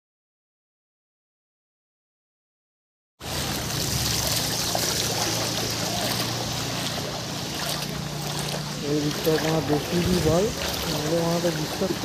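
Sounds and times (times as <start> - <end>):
heavy rain on flooded street: 3.2 - 12.0.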